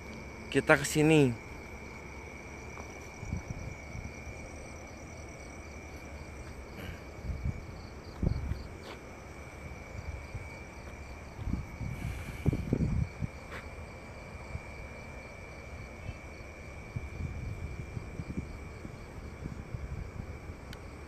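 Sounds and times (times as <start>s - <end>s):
insects trilling: 0.0s - 21.0s
pulsing insect chirp: 0.0s - 21.0s
soft footstep thuds: 8.1s - 9.1s, 10.8s - 11.7s, 12.7s - 13.7s.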